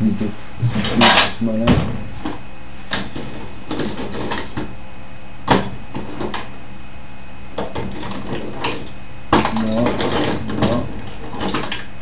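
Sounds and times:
tools clicking and clattering: 3.0s - 4.7s, 7.6s - 11.9s.

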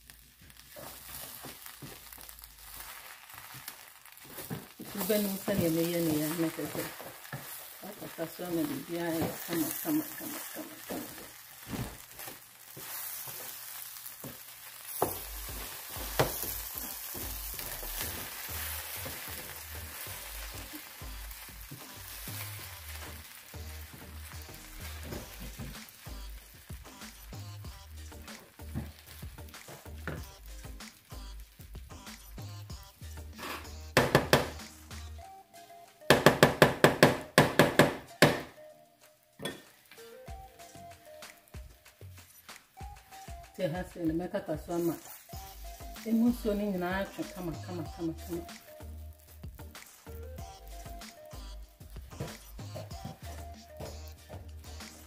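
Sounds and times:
rice sizzling in a frying pan: 0.0s - 34.0s, 39.2s - 52.2s
wooden spoon scraping a pan: 2.7s - 21.0s
background music: 4.7s - 12.7s, 13.8s - 55.0s
spatula knocking on frying pan: 14.3s - 17.4s, 34.0s - 34.6s, 36.1s - 38.5s.

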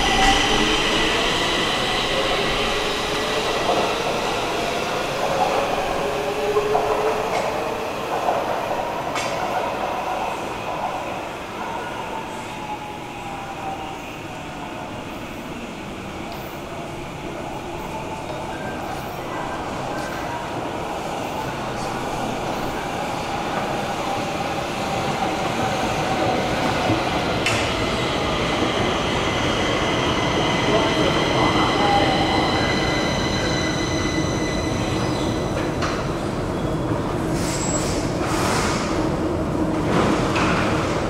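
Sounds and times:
metro train rumble: 0.0s - 41.0s
high multi-tone squeal: 30.2s - 35.6s.

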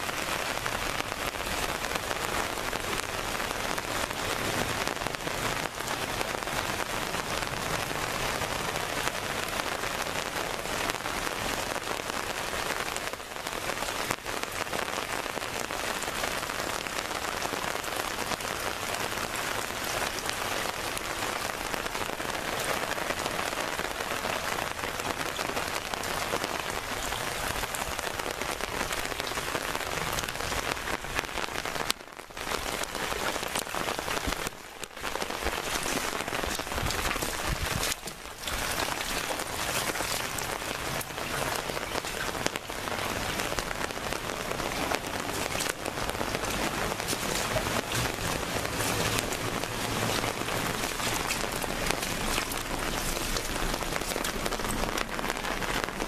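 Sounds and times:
heavy rain on puddles: 0.0s - 56.0s.

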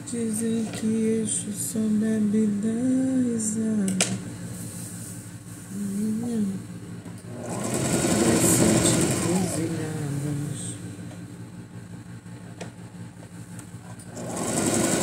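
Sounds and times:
woman humming a slow tune: 0.0s - 4.1s, 5.7s - 6.8s, 8.5s - 10.9s.

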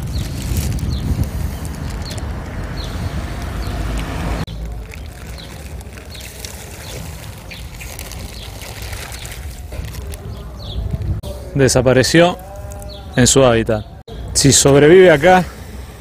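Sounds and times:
plastic bag crinkling: 0.0s - 11.1s
small birds chirping: 0.0s - 11.1s, 12.4s - 14.4s
wind rumble on microphone: 0.0s - 11.6s.

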